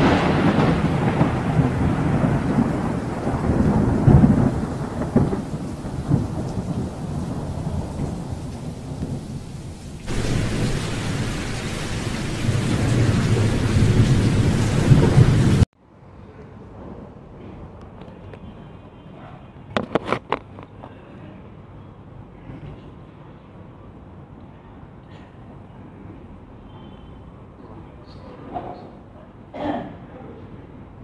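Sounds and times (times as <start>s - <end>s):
rolling thunder: 0.0s - 15.7s
steady rain: 0.0s - 15.7s.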